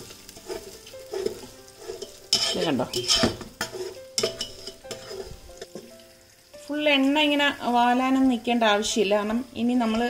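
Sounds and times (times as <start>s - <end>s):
skimmer scraping metal pot: 0.0s - 5.9s
oil sizzling: 0.0s - 10.0s.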